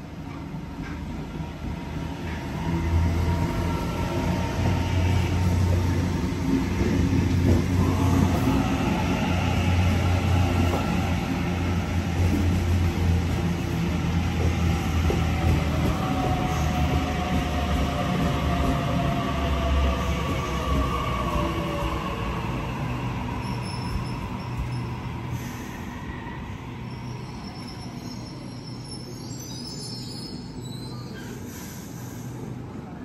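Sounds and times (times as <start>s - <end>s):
electric train humming: 1.5s - 26.8s.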